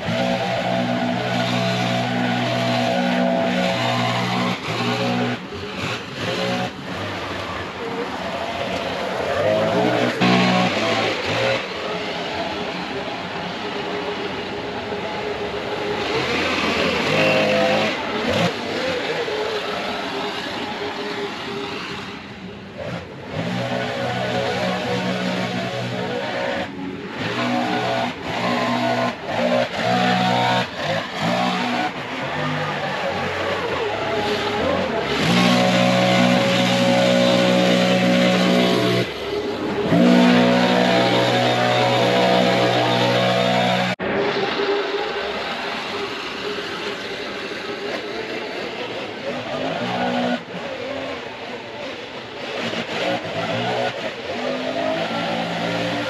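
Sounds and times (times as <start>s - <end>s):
leaf blower engine running: 0.0s - 13.2s, 15.0s - 56.0s.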